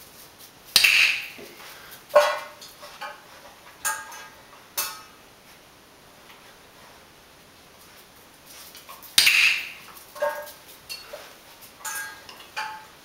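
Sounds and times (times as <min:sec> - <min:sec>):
metal dog bowl clanking: 0:09.2 - 0:11.2, 0:11.8 - 0:12.9.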